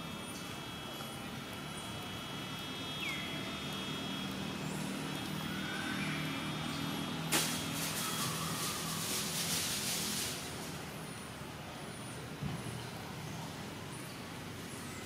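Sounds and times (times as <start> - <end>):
vehicle engine humming: 0.0 - 11.1
loud hiss: 7.3 - 10.9.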